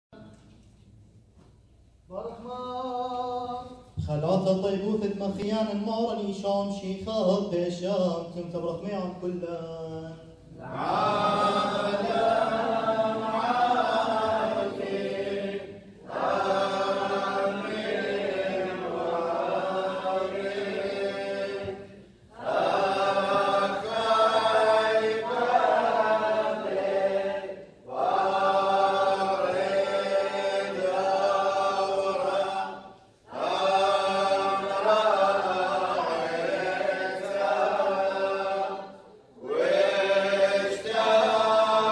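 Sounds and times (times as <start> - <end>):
choir chanting unaccompanied: 9.3 - 41.9.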